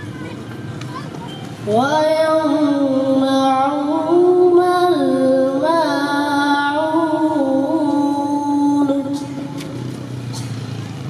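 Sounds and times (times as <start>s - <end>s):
boy chanting religious recitation: 1.6s - 9.6s.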